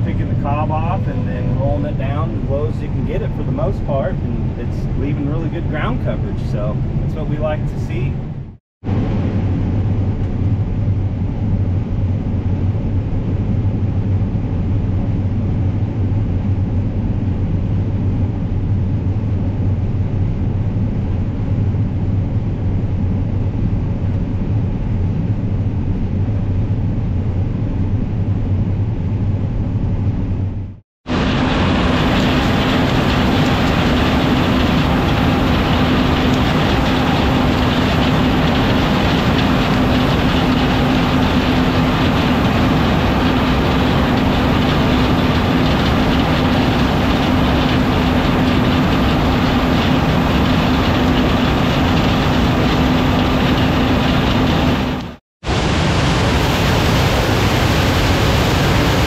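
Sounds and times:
combine harvester mechanical din: 0:00.0 - 0:08.3, 0:31.1 - 0:59.0
low hum from header: 0:00.0 - 0:59.0
wheel rolling through stubble: 0:31.1 - 0:55.1.

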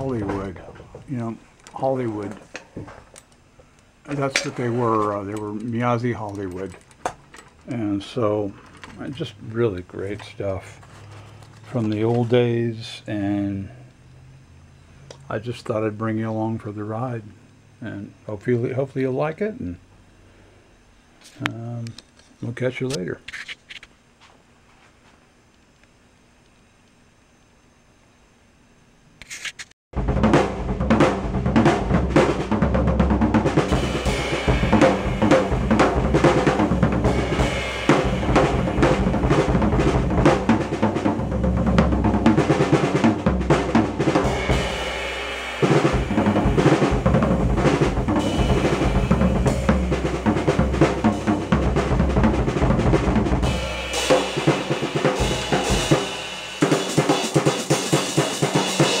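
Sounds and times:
drum kit groove on snare: 0:00.0 - 0:02.4, 0:04.1 - 0:06.7, 0:30.0 - 0:59.0
cymbals: 0:30.0 - 0:59.0.

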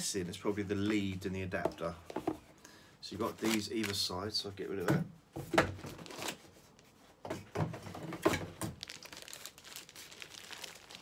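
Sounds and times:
plastic bag crinkling: 0:03.3 - 0:04.1, 0:08.6 - 0:11.0.

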